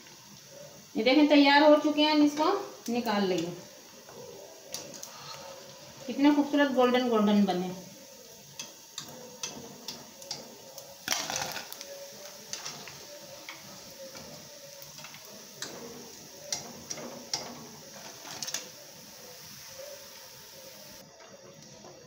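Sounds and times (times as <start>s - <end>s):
clicks and crackles of frying: 0.0s - 22.0s.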